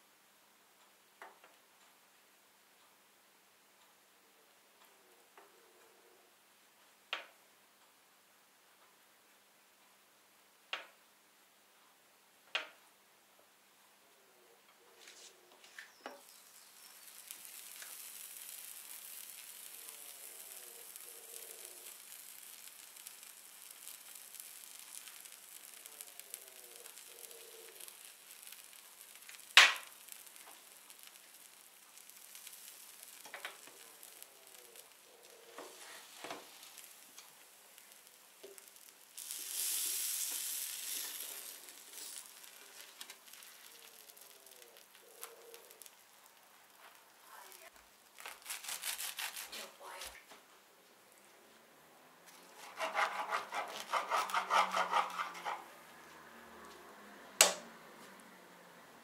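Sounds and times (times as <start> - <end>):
sandwich sizzling on grill: 15.0 - 50.1, 52.2 - 56.6.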